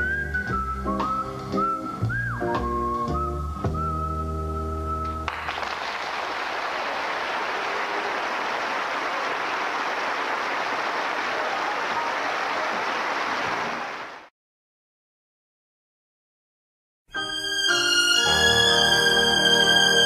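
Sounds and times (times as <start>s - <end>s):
audience applauding: 5.2s - 14.3s.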